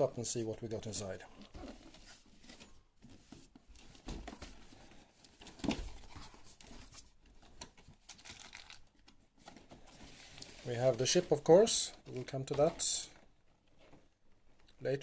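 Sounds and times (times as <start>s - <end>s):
cardboard flaps rustling: 1.4s - 8.6s
plastic tray crinkling: 7.4s - 14.0s.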